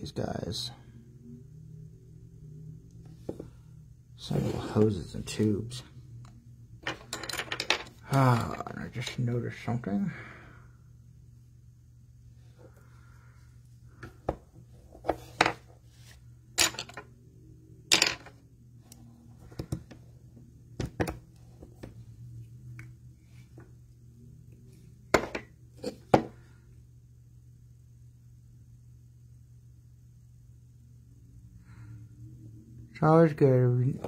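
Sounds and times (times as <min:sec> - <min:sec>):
low hum: 0:00.0 - 0:34.0.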